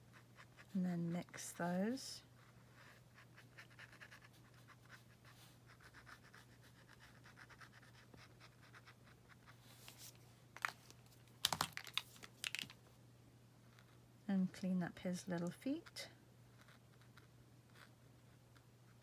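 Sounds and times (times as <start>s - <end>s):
low steady hum: 0.0s - 19.0s
brush scratching on paper: 2.4s - 10.1s.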